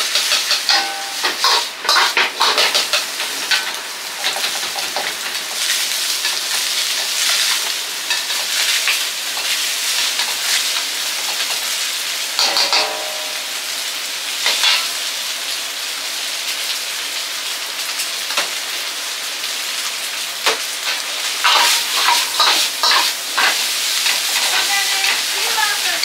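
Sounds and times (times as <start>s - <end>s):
utensils knocking on pan: 0.0s - 5.1s, 12.4s - 13.6s, 14.5s - 14.9s, 21.4s - 26.0s
food sizzling in oil: 0.0s - 26.0s.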